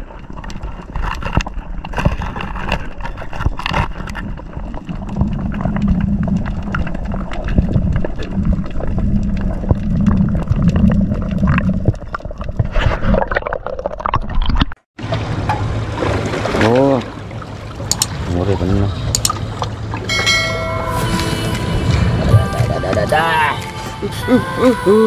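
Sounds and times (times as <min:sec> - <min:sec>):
muffled underwater water movement: 0:00.0 - 0:24.9
sharp underwater clicks and knocks: 0:00.2 - 0:15.7, 0:17.8 - 0:18.3, 0:19.0 - 0:20.4
low throbbing rumble: 0:04.1 - 0:12.6, 0:15.0 - 0:25.0.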